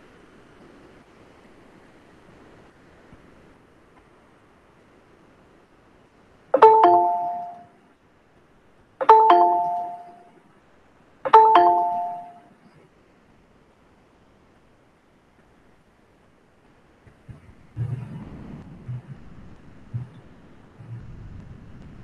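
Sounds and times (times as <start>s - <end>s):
two-tone doorbell chime: 6.6s - 7.7s, 9.0s - 10.3s, 11.3s - 12.5s.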